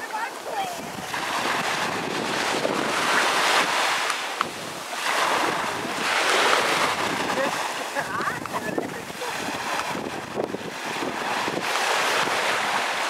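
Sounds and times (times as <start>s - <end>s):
small waves washing on sand: 0.0s - 13.0s.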